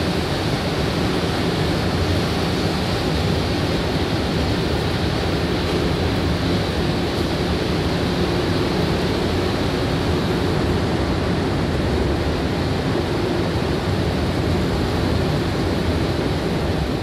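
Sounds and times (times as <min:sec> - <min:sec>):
train running through tunnel: 0:00.0 - 0:17.0.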